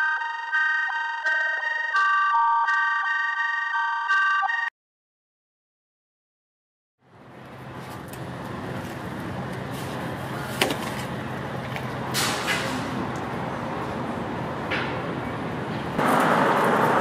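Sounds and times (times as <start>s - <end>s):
street traffic hum: 7.0s - 17.0s.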